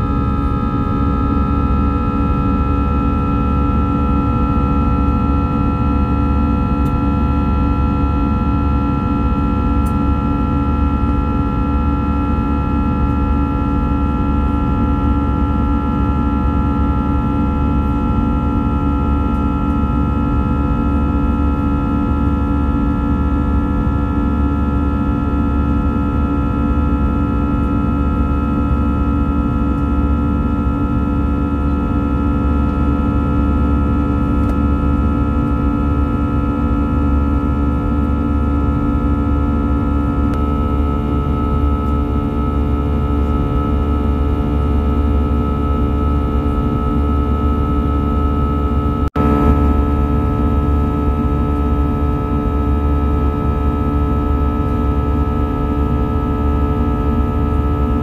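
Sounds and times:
jet engines droning in cabin: 0:00.0 - 0:58.0.

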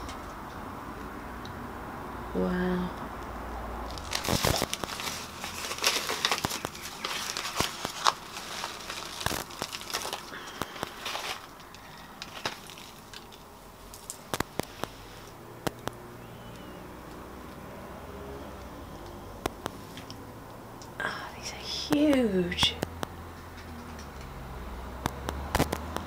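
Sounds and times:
newspaper crinkling and rustling: 0:03.9 - 0:14.9.

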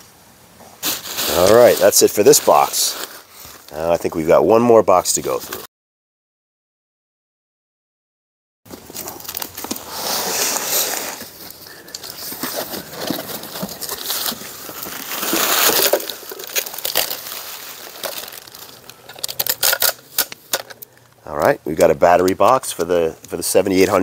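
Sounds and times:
bubble wrap crinkling and rustling: 0:00.8 - 0:04.0, 0:08.7 - 0:21.1
sharp crackles and clicks: 0:08.8 - 0:23.4.

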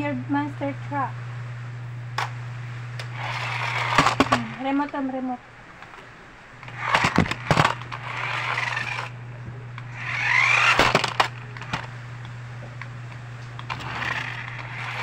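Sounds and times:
toy truck electric motor whirring: 0:03.0 - 0:04.6, 0:06.6 - 0:09.2, 0:09.8 - 0:11.9, 0:13.6 - 0:15.0.

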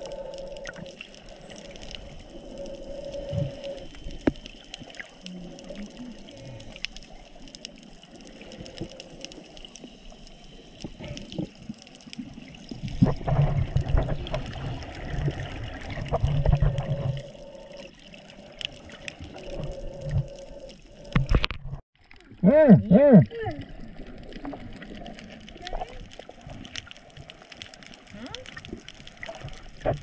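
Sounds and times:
sharp clicks underwater: 0:00.0 - 0:22.2
water sloshing and bubbling: 0:00.0 - 0:30.0.

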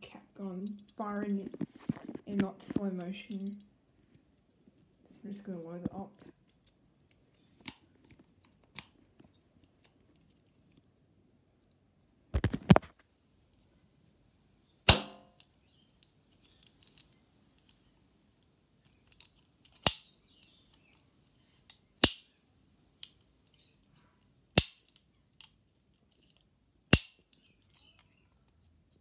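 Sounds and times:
cap gun cracks: 0:14.9 - 0:15.4, 0:19.8 - 0:20.1, 0:22.0 - 0:22.3, 0:24.6 - 0:25.0, 0:26.9 - 0:27.4
cap gun hammer clicks: 0:14.9 - 0:15.4, 0:22.0 - 0:22.3, 0:24.6 - 0:25.0, 0:26.9 - 0:27.3.

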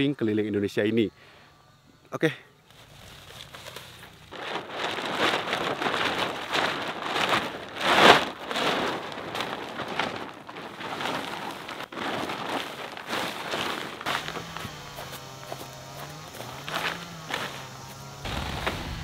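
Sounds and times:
plastic tarpaulin crinkling: 0:02.7 - 0:19.0.

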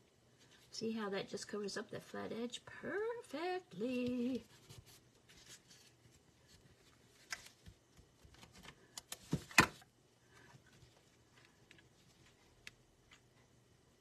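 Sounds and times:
paper rustling: 0:04.2 - 0:09.5.

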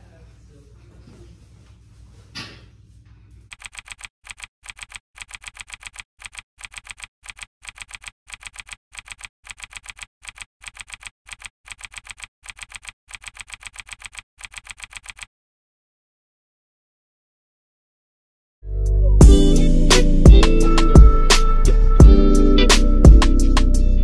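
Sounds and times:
typewriter keystroke clicks: 0:03.5 - 0:15.3.

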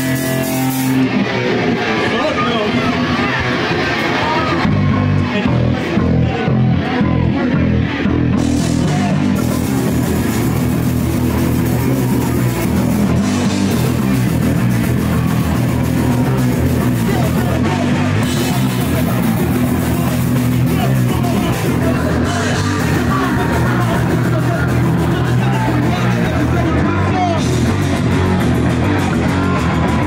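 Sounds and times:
drum kit: 0:00.0 - 0:02.3, 0:03.0 - 0:30.0
electric guitar: 0:00.0 - 0:30.0.

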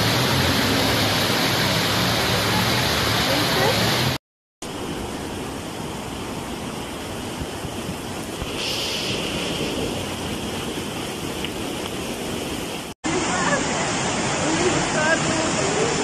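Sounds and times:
floodwater rushing roar: 0:00.0 - 0:16.0
brief hiss: 0:08.4 - 0:09.9.

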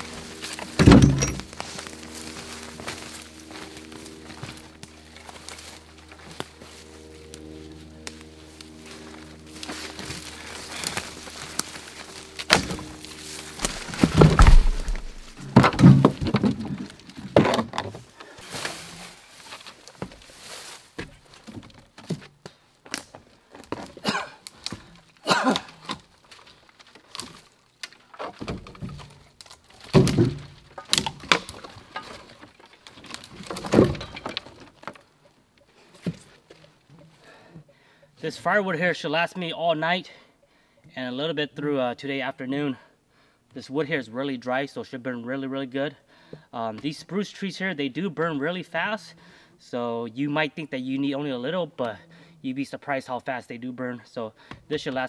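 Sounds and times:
firewood thunking into truck bed: 0:00.6 - 0:01.6, 0:12.4 - 0:12.9, 0:13.6 - 0:17.9, 0:28.2 - 0:32.4, 0:33.0 - 0:34.9.

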